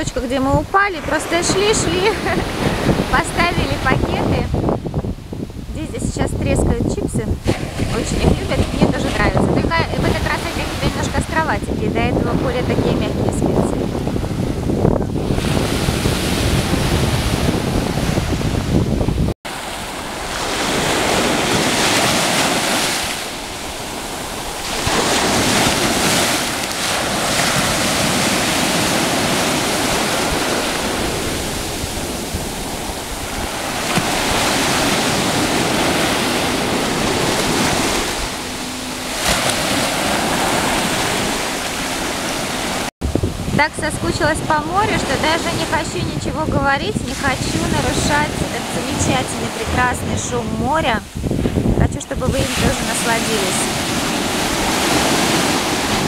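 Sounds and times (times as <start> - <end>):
sea surf breaking: 0.0 - 56.0
wind rumble on microphone: 0.0 - 56.0.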